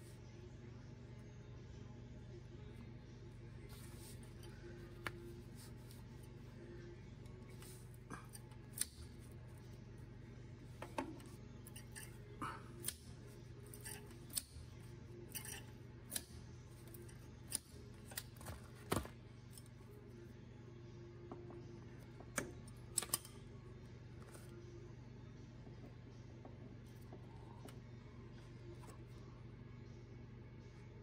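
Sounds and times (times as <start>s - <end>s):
steady low hum: 0.0s - 31.0s
pliers clicking and snipping wire: 8.2s - 9.2s, 12.8s - 14.7s, 15.3s - 19.7s, 22.4s - 23.4s.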